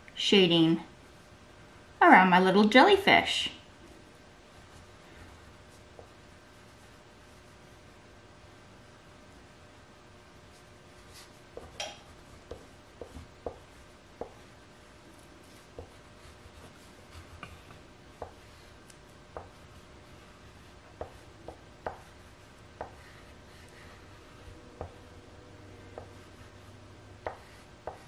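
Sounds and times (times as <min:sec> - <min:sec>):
rubbing on paper: 0:10.5 - 0:11.7.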